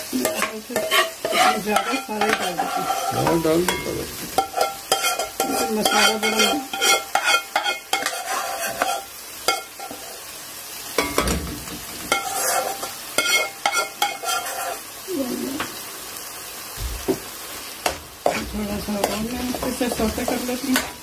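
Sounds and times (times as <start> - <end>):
spices sizzling in oil: 0.0 - 21.0
metal spoon scraping pan: 0.1 - 10.2, 12.1 - 14.8, 18.2 - 21.0.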